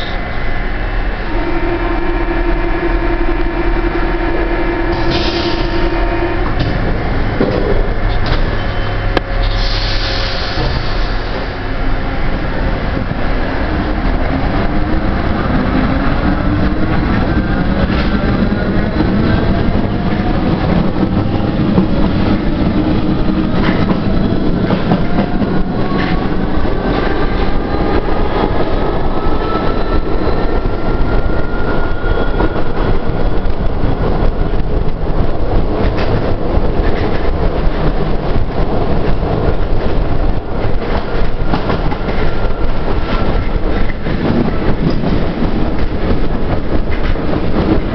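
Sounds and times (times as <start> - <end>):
train rumble: 0.0 - 47.9.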